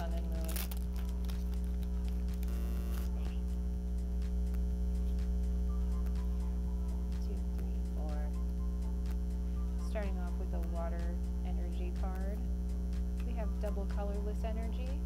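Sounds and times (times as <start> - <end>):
foil wrapper crinkling: 0.0 - 3.2
low electrical mains hum: 0.0 - 15.0.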